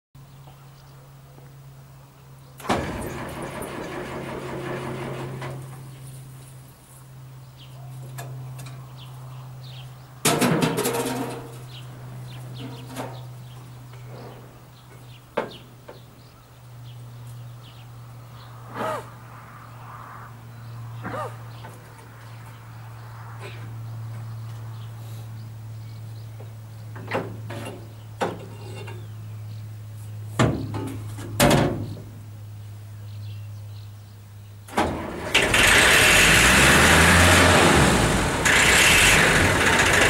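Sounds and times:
engine cranking on starter: 2.6s - 6.0s, 34.7s - 40.0s.

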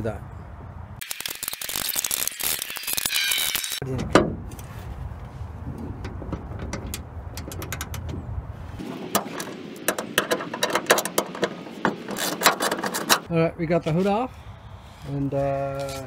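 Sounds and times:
ratchet wrench clicking: 1.0s - 3.8s.

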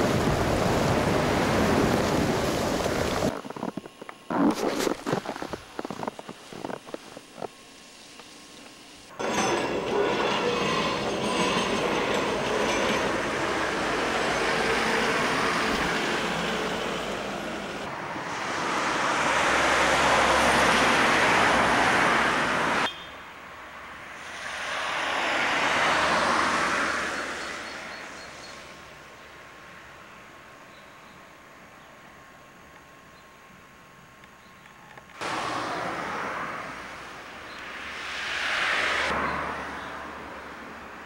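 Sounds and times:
broad rushing noise: 0.0s - 7.5s, 9.0s - 22.9s, 24.0s - 29.1s, 35.2s - 39.6s
train rumbling over rails: 9.1s - 22.8s.

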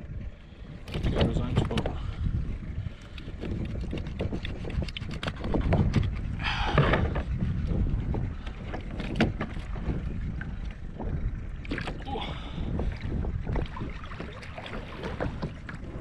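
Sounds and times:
water against kayak hull: 0.0s - 16.0s
wind rumble on microphone: 0.0s - 16.0s
gear knocking and clicking: 3.1s - 10.1s.

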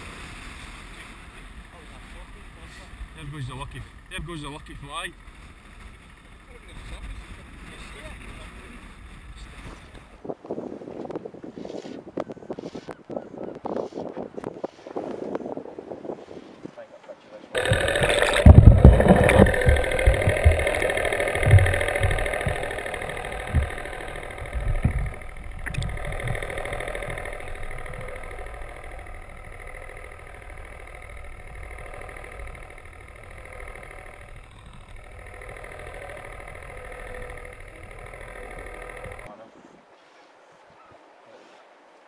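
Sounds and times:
boat engine hum underwater: 0.0s - 10.1s, 17.6s - 39.3s.

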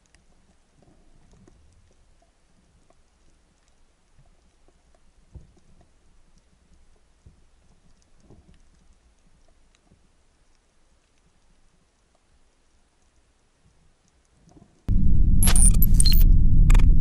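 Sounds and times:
dull low thumps: 14.9s - 17.0s.

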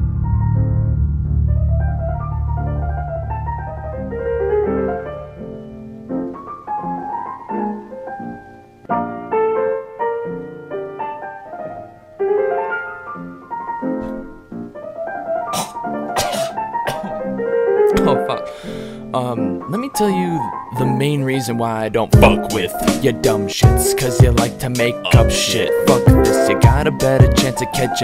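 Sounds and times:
low bass note: 0.0s - 4.7s
piano chords and melody: 0.0s - 28.0s
sharp drum hits: 22.2s - 23.0s.

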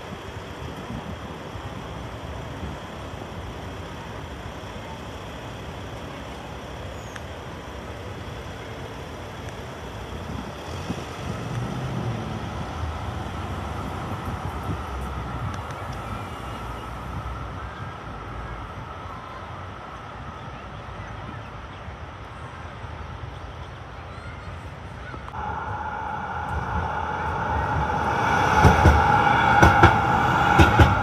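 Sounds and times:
car engines idling in traffic: 0.0s - 31.0s
steady high whine: 25.3s - 31.0s.

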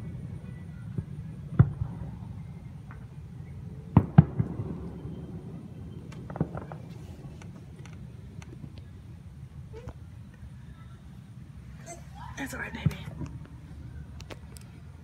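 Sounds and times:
fireworks bangs: 0.0s - 8.8s, 12.4s - 13.5s.

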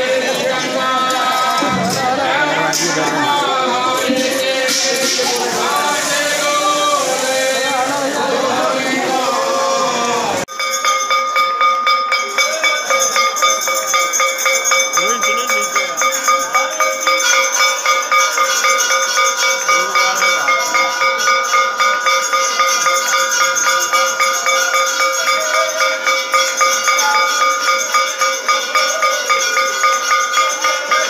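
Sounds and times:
faint voices: 0.0s - 10.5s, 12.0s - 31.0s
temple bells ringing: 10.5s - 31.0s.

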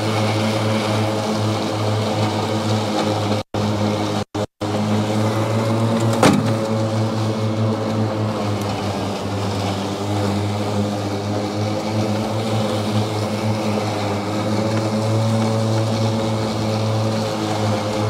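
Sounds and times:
riding mower cutting grass: 0.0s - 18.0s
sharp knock: 6.2s - 6.6s.

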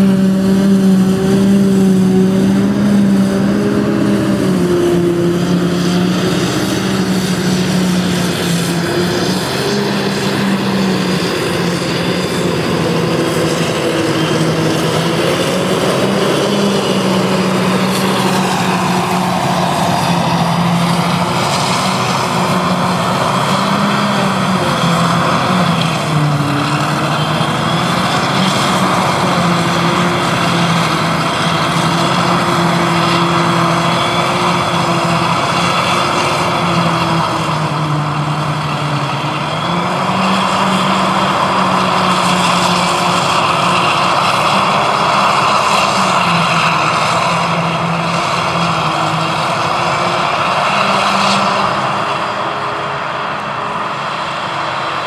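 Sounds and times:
harvester and tractor engines droning: 0.0s - 55.0s.

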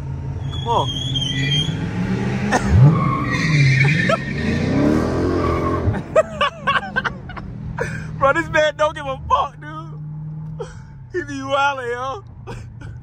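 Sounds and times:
car exhaust revving hard: 1.3s - 8.3s.

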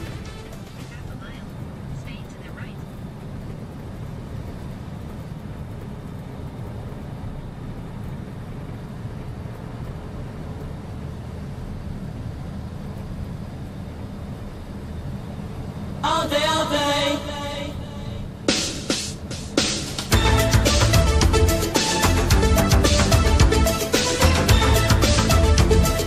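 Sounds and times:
vehicle driving rumble: 0.0s - 26.0s
music with singing: 19.6s - 26.0s.

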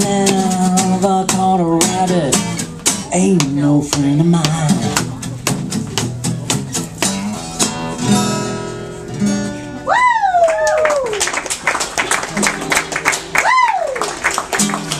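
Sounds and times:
acoustic guitar strumming: 0.0s - 9.9s, 12.2s - 14.9s
person whooping: 9.9s - 11.3s, 13.4s - 14.0s.

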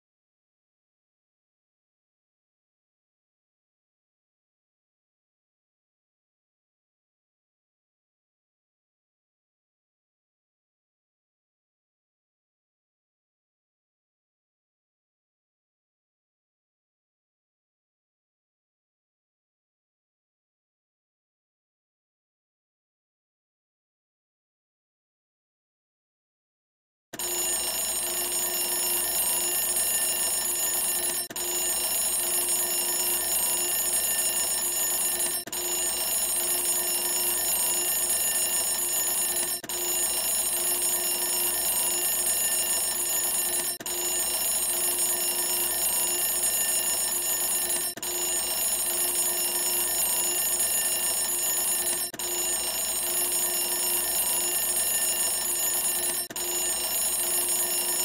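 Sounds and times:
timer alarm tones: 27.2s - 58.0s.

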